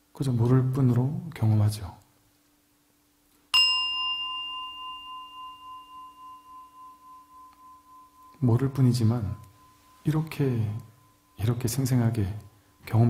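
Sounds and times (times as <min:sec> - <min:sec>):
metal meditation bell ringing: 0:03.5 - 0:13.0.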